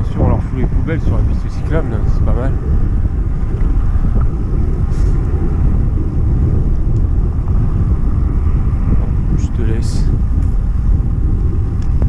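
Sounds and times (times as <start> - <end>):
wind on microphone: 0.0 - 12.0.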